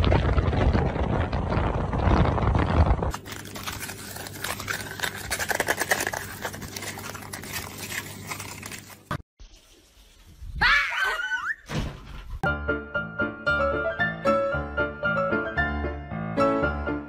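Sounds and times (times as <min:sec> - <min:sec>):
rodent shredding toilet paper: 0:03.1 - 0:09.2.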